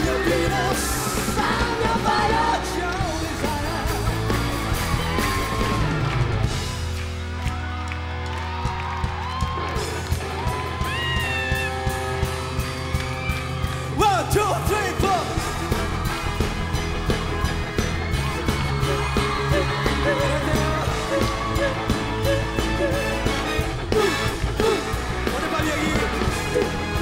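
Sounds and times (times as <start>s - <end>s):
lead vocal singing: 0.0s - 4.6s, 18.4s - 27.0s
live rock band playing: 0.0s - 27.0s.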